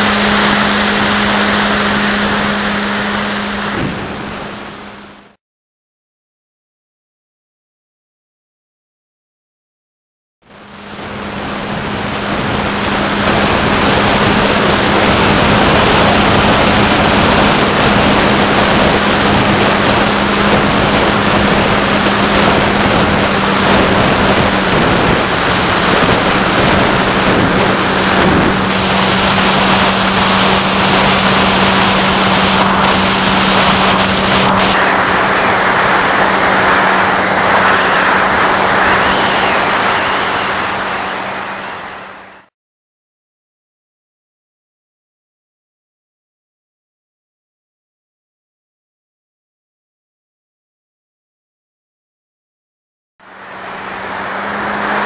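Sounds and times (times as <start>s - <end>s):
wind rushing: 0.0s - 5.2s, 10.8s - 42.5s
electric motor and propeller hum: 0.0s - 5.4s, 10.5s - 42.5s, 53.2s - 55.0s.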